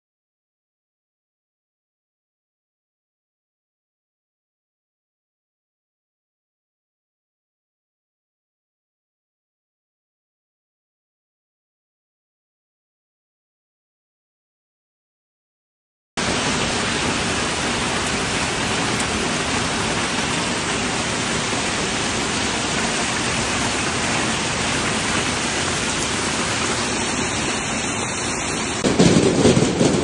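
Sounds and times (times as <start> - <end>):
hail pouring on ground: 16.2 - 30.0.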